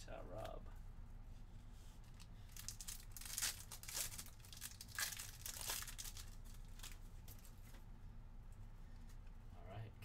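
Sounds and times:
wrapper being torn open: 2.1s - 7.6s.

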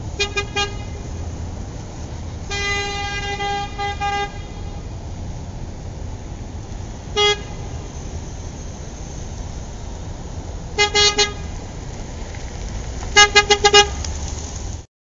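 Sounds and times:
car horn honking: 0.0s - 1.1s, 2.5s - 4.9s, 7.1s - 7.8s, 10.8s - 11.5s, 13.2s - 14.0s
street traffic rumble: 0.0s - 14.9s.

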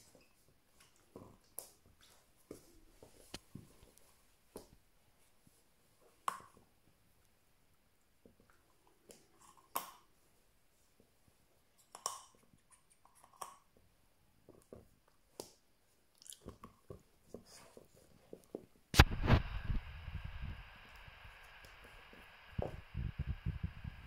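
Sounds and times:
sudden loud bump: 19.0s - 20.1s
steady noise: 19.0s - 24.0s.

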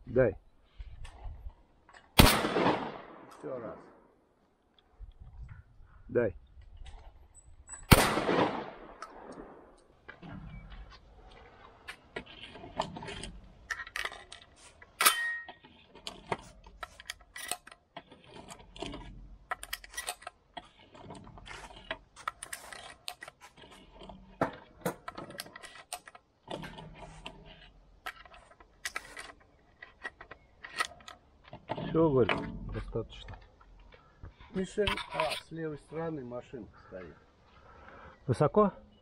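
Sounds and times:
gun metal clicks and rattles: 6.5s - 10.2s, 11.6s - 34.0s.

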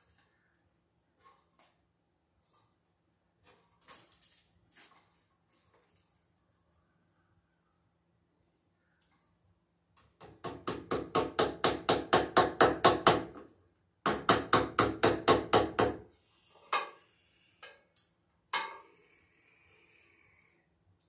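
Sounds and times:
rapid knocking of screw driving: 10.2s - 13.4s, 14.1s - 16.0s.

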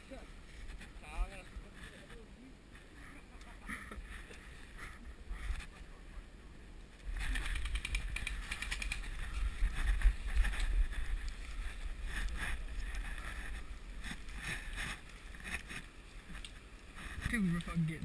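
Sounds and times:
wind rumble on microphone: 4.0s - 18.0s
rapid sharp clicks: 7.2s - 9.2s.

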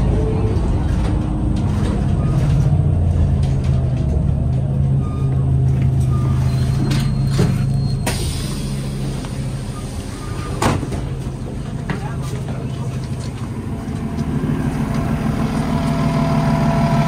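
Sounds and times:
bus drivetrain hum: 0.0s - 17.0s
bus hiss: 8.0s - 10.6s.

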